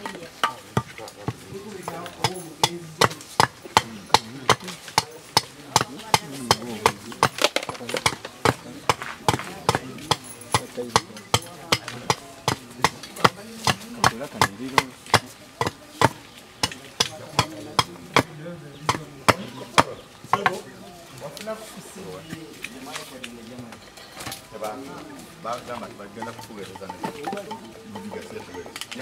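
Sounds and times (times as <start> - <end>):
hatchet chopping wood: 0.0 - 20.6
faint murmuring voices: 0.0 - 29.0.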